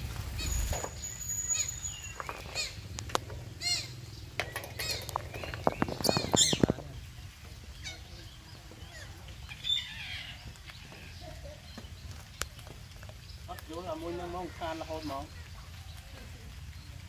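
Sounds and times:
parakeets squawking: 0.3s - 7.0s, 7.7s - 11.4s.

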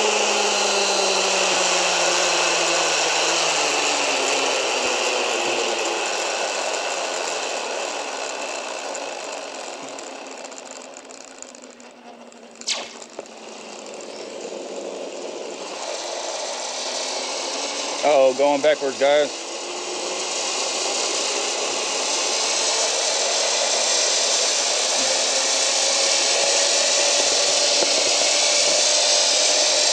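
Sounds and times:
zip-line pulleys whirring on cable: 0.0s - 29.9s
sharp clack: 9.8s - 14.4s
air rushing past: 12.6s - 13.2s.

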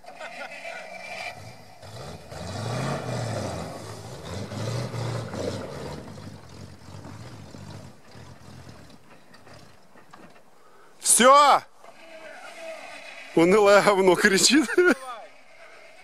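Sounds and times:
truck engine revving: 0.0s - 10.3s.

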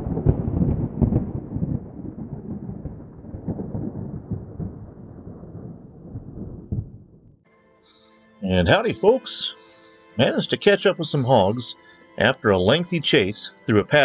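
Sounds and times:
deep booming hits: 0.0s - 7.4s
low thunder-like rumble: 0.0s - 7.4s.

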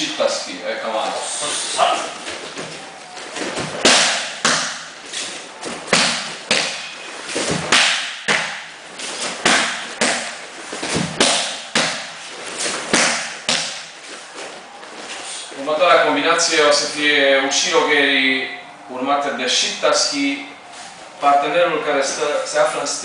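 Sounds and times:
strikes smacking a kick shield: 3.6s - 4.9s, 5.9s - 6.8s, 7.4s - 8.7s, 9.4s - 12.1s.

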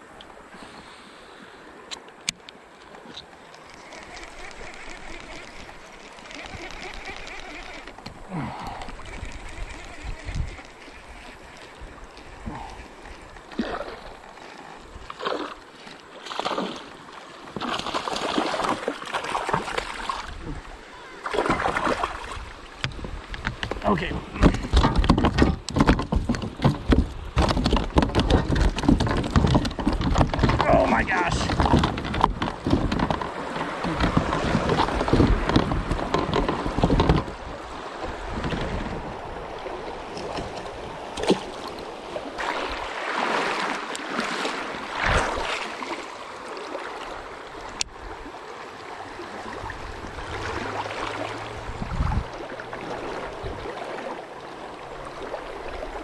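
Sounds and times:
water splashing against kayak: 0.0s - 56.0s.

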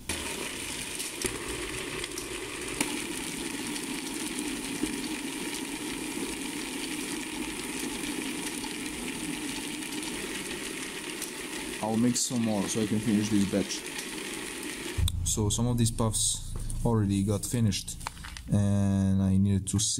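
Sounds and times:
roller drum hiss and drone: 10.0s - 18.6s.

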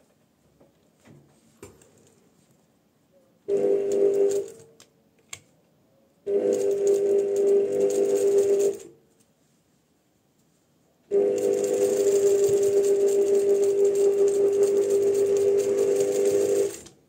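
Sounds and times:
sewing machine stitching: 3.5s - 4.6s, 6.3s - 8.9s, 11.2s - 17.0s.

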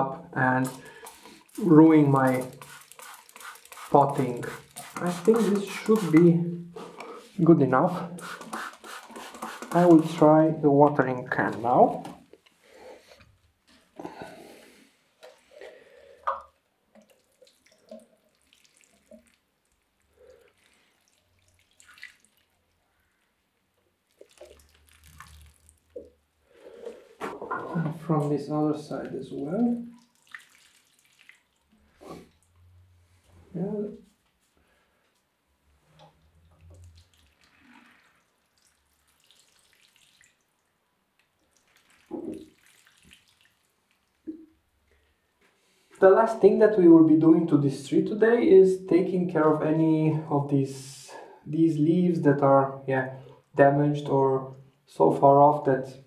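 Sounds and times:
water pattering and dripping: 0.6s - 6.4s, 15.2s - 32.7s, 36.0s - 45.0s.

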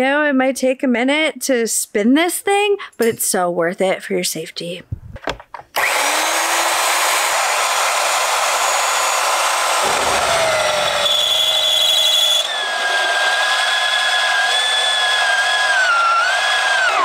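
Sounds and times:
drill press running: 5.8s - 17.0s
high squeal of drill cutting steel: 10.1s - 17.0s.

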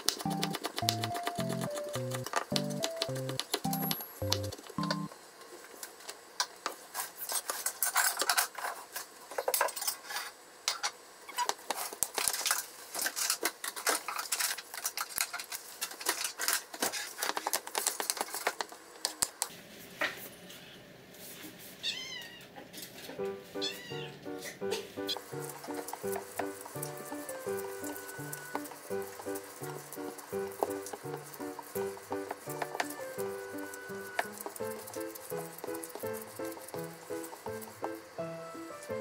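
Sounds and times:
knife tapping on cutting board: 0.0s - 5.0s
cat meowing: 21.8s - 22.6s, 23.6s - 24.2s.

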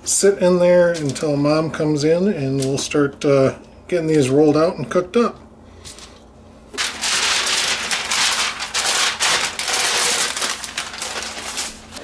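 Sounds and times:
plastic crinkling: 6.8s - 12.0s.

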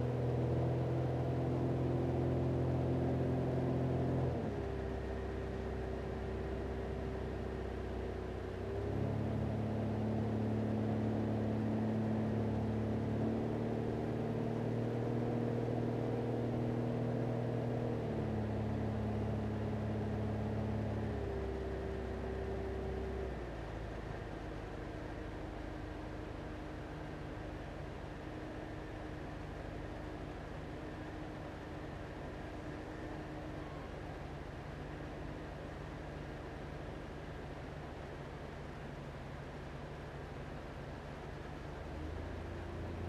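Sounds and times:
light aircraft engine droning: 19.2s - 43.0s.

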